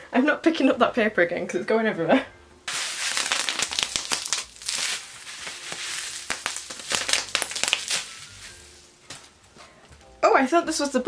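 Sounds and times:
bubble wrap crinkling: 2.7s - 9.4s.

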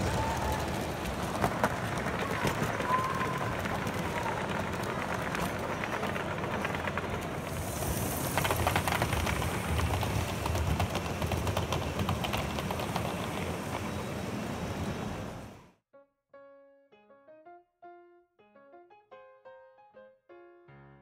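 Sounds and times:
model trains rumbling on track: 0.0s - 15.7s.

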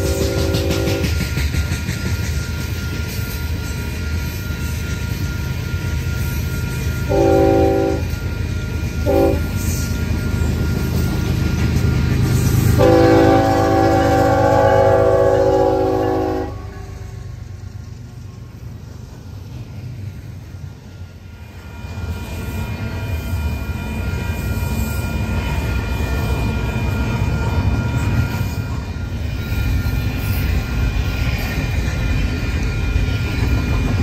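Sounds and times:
locomotive air horn: 0.0s - 1.2s, 7.1s - 8.2s, 9.0s - 9.5s, 12.7s - 17.0s
freight train rumbling on rails: 0.0s - 34.0s.

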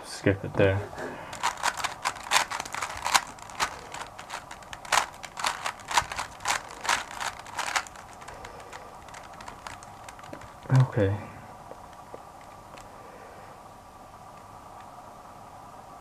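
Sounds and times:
puzzle cube plastic clicks: 1.3s - 10.8s.

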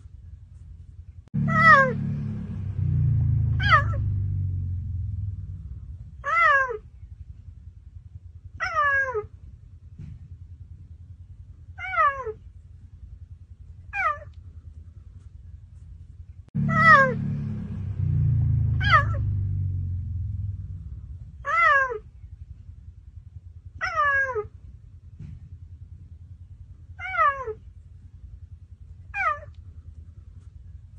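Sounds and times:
low rumble: 0.0s - 30.9s
cheetah meow-like calls: 3.6s - 4.0s, 6.2s - 6.8s, 8.6s - 9.3s, 11.8s - 12.4s, 13.9s - 14.3s, 18.8s - 19.2s, 21.4s - 22.1s, 23.8s - 24.5s, 27.0s - 27.6s, 29.1s - 29.6s.

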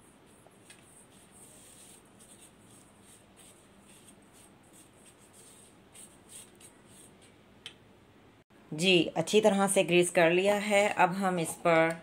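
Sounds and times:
pastry brush scratching pan: 0.0s - 7.3s.

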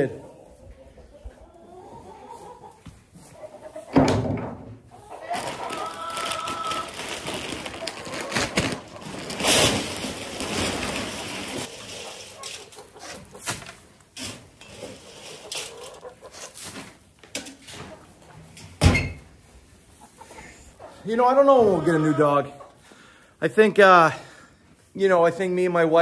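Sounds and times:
hay rustling and crunching: 5.3s - 13.7s.

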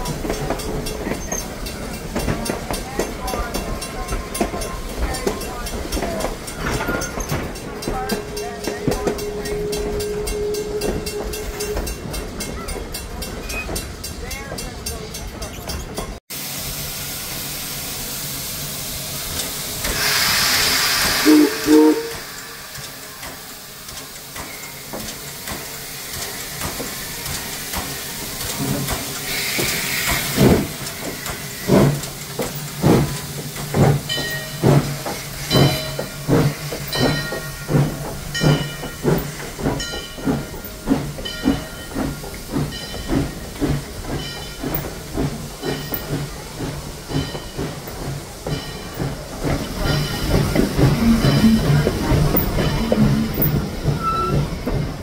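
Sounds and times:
locomotive rhythmic chuffing: 0.0s - 55.0s
steam whistle toots: 8.3s - 12.1s, 19.9s - 22.8s
steam hissing: 15.5s - 55.0s.

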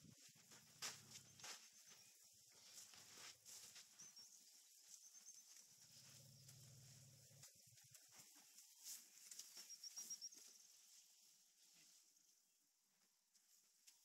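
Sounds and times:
high bird chirps: 9.5s - 10.6s.

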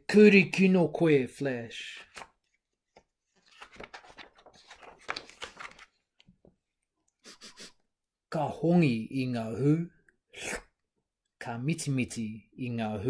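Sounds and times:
paper page rustling: 2.0s - 6.6s.

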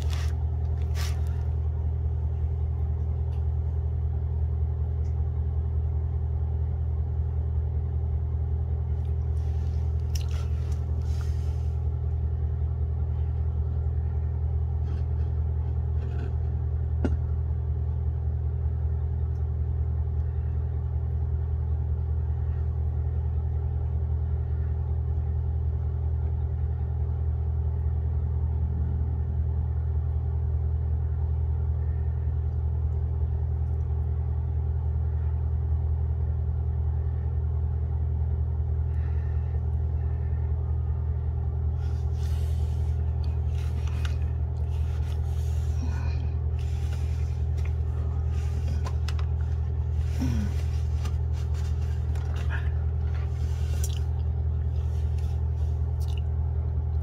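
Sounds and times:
low mechanical hum: 0.0s - 57.0s.

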